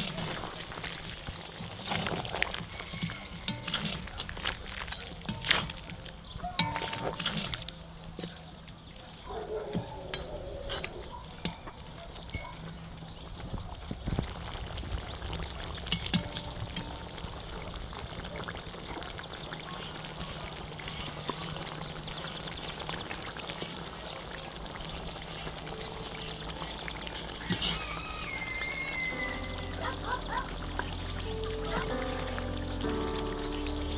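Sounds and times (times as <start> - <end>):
sauce bubbling in a pot: 0.0 - 33.9
metal ladle clinking on pot: 2.9 - 4.1, 6.5 - 7.6.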